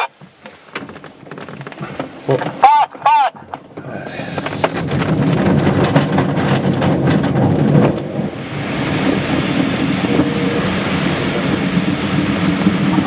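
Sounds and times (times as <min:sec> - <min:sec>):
glider wheel rumbling and rattling: 0:00.2 - 0:13.0
air rushing past canopy: 0:03.8 - 0:13.0.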